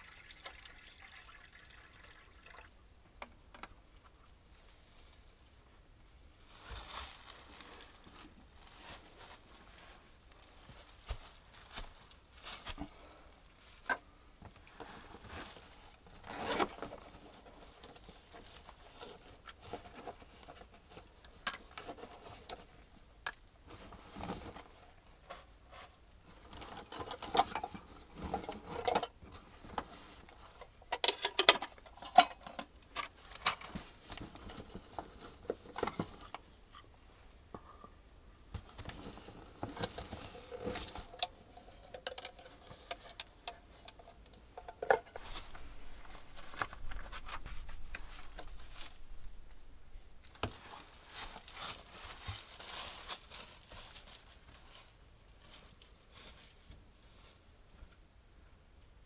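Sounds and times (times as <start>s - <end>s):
backpack fabric rustling: 45.2s - 54.1s.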